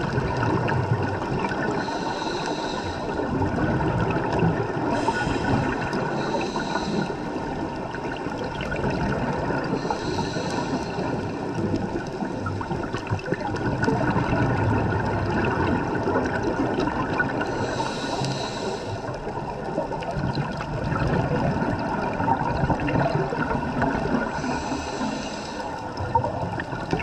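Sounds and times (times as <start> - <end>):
exhaled bubbles gurgling: 0.0 - 27.0
scuba regulator breathing: 1.5 - 3.4, 4.6 - 7.8, 9.4 - 12.6, 17.3 - 19.4, 24.1 - 26.0.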